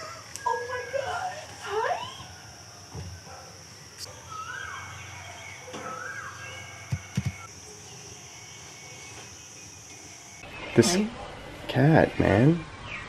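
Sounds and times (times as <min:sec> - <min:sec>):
high-pitched insect drone: 0:00.0 - 0:11.1
whistled bird calls: 0:04.0 - 0:07.5.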